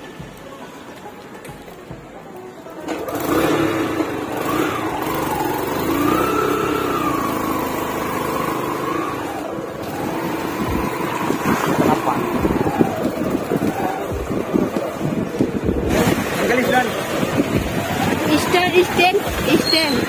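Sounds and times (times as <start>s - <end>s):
motorcycle engine accelerating: 2.9s - 20.0s.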